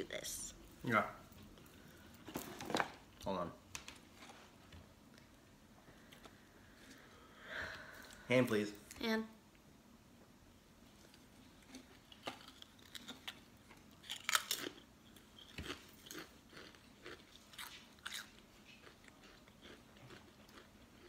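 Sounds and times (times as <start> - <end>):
person crunching crisps: 11.5 - 21.0.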